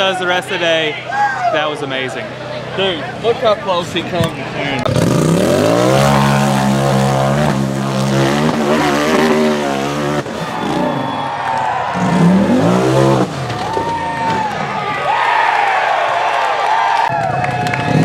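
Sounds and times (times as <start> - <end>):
buggy engine revving: 2.2 - 15.2.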